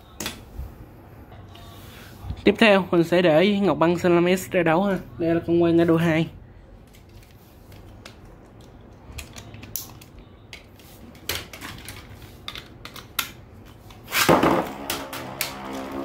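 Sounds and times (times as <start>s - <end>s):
plastic toys clicking and clattering: 6.8s - 14.0s.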